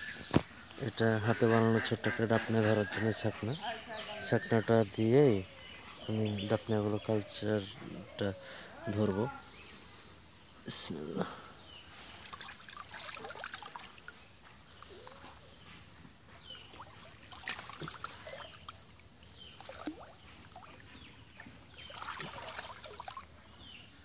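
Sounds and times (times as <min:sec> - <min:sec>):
water sloshing and dribbling: 0:11.8 - 0:23.7.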